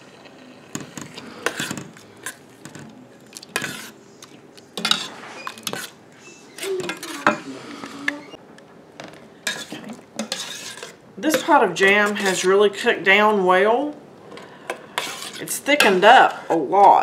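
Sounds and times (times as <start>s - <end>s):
spoon stirring thick jam: 0.6s - 6.0s, 9.4s - 12.7s, 14.3s - 17.0s.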